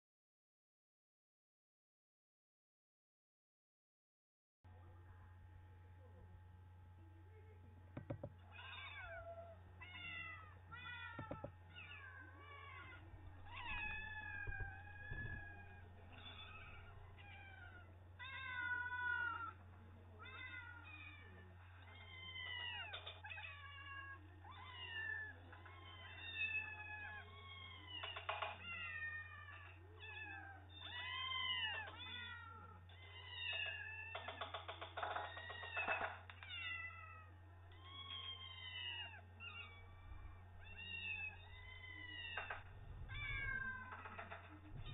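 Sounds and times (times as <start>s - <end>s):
steady low hum: 4.7s - 27.9s, 36.9s - 44.9s
cats meowing through small speaker: 8.0s - 19.6s, 20.2s - 44.9s.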